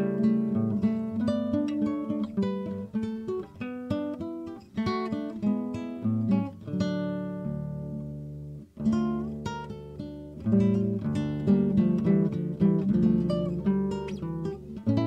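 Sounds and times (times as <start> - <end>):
acoustic guitar plucking: 0.0 - 15.0.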